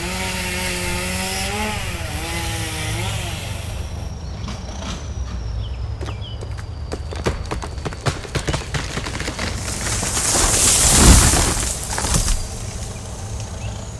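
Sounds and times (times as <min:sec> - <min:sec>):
tree trunk cracking: 0:07.3 - 0:13.6
branches snapping: 0:08.4 - 0:13.6
branches rushing through air: 0:09.2 - 0:13.6.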